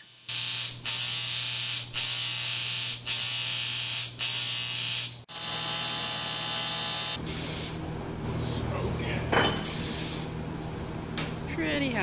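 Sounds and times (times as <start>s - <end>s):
welding arc buzzing hiss: 0.0s - 7.9s, 9.6s - 10.4s.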